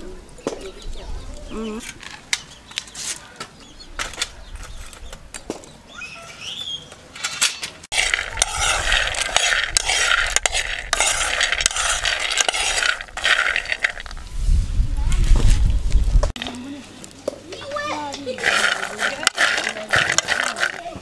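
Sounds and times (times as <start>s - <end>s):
nuts rattling in metal pan: 7.9s - 14.2s, 17.9s - 21.0s.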